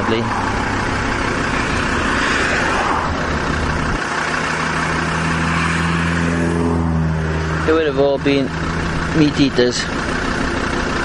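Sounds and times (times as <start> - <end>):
rushing noise: 0.0 - 7.9
vehicle engine running: 0.0 - 11.0.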